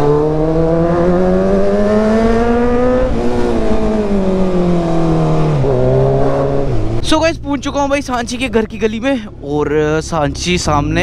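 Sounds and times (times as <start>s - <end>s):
motorcycle engine accelerating: 0.0s - 8.4s.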